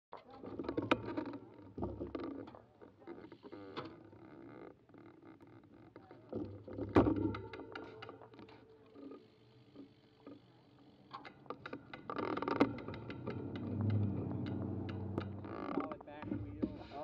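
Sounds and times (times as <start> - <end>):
bike clicks and knocks: 6.4 - 8.6, 11.1 - 16.6.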